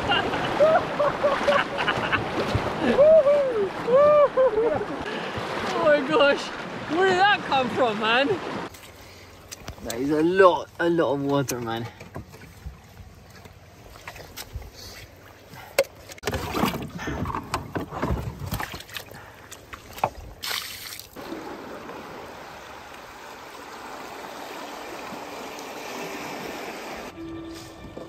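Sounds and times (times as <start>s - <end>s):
fast-flowing river rushing: 0.0s - 8.7s, 21.2s - 27.2s
water sloshing inside canoe: 0.0s - 28.0s.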